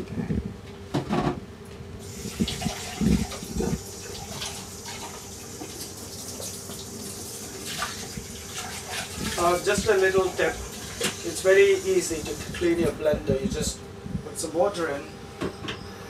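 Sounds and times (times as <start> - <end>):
tap water filling jug: 2.0 - 11.4.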